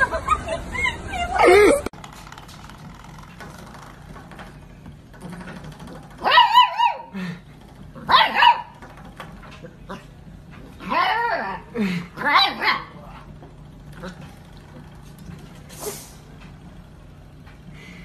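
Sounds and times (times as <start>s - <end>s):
puppy yipping barks: 6.2s - 7.1s, 8.0s - 8.8s, 12.2s - 13.0s.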